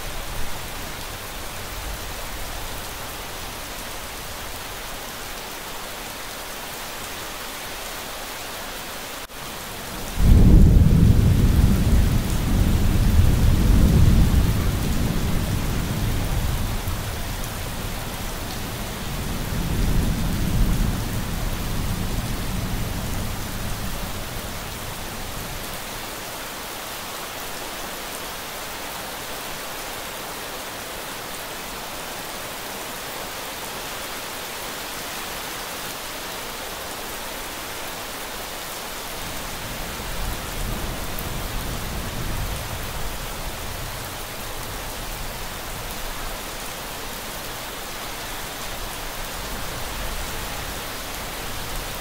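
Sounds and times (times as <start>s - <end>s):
rain falling: 0.0s - 52.0s
thunder clap and rumble: 10.1s - 18.0s.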